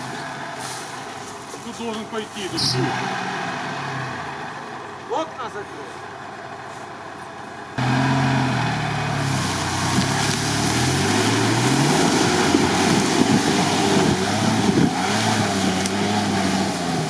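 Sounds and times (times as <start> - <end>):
off-road vehicle engine revving: 0.0 - 5.1, 7.7 - 17.0
tyres spinning through mud: 7.8 - 17.0.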